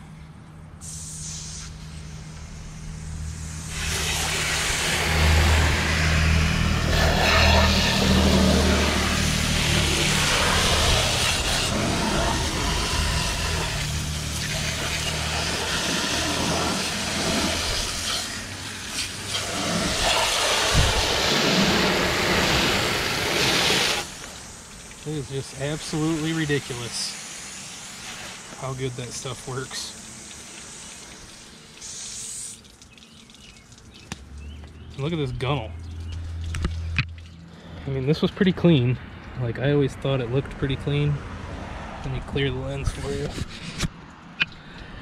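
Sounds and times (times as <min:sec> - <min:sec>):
hose water spraying on metal hull: 0:00.8 - 0:34.0.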